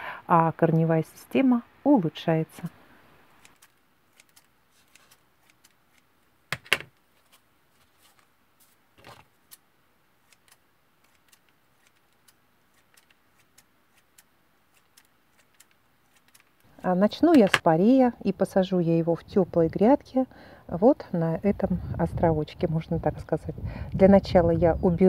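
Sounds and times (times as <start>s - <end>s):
leaves rustling: 2.9s - 6.4s, 7.0s - 17.1s
scissors snipping: 3.4s - 6.1s, 10.2s - 16.6s.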